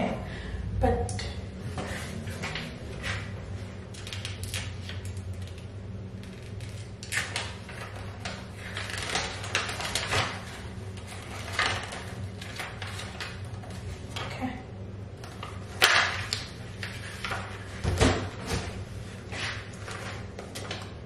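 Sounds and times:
paper rustling and crinkling: 6.2s - 14.1s, 15.2s - 20.9s.

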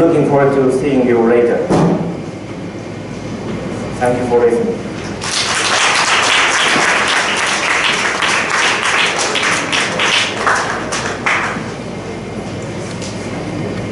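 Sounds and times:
audience applauding: 5.1s - 11.8s.

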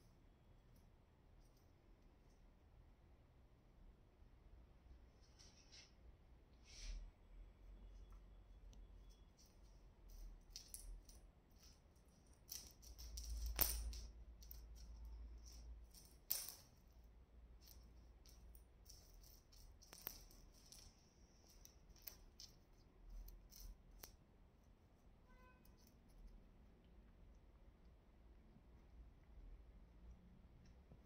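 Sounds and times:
necklace jingling on marble floor: 8.0s - 26.3s.

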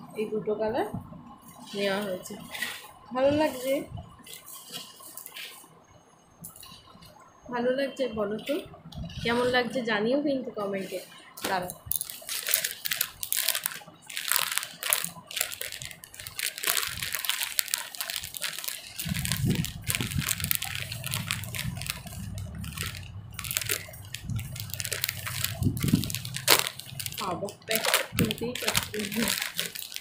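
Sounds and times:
plastic bag crinkling: 1.6s - 5.6s, 10.8s - 30.0s
low rumble: 19.1s - 27.4s.

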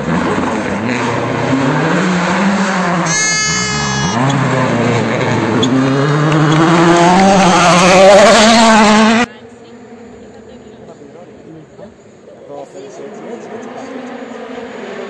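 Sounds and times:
rally car engine revving: 0.0s - 9.3s, 13.0s - 15.0s.

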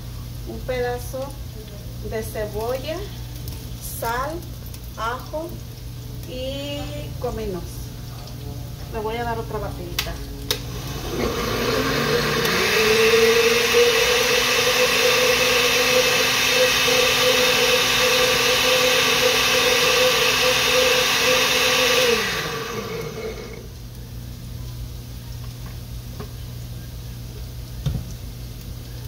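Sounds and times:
blender motor running: 10.5s - 23.8s.

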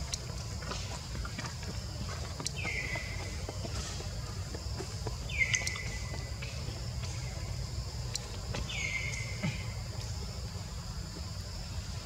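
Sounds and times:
insect drone: 0.0s - 12.0s
light clicks: 5.4s - 5.9s.

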